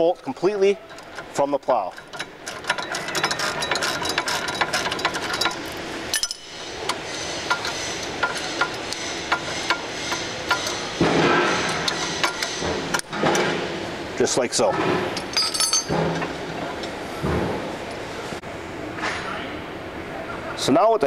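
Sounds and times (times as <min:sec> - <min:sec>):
rough metal scraping: 0:00.8 - 0:13.8
metal clinks: 0:01.9 - 0:06.6, 0:15.2 - 0:16.0.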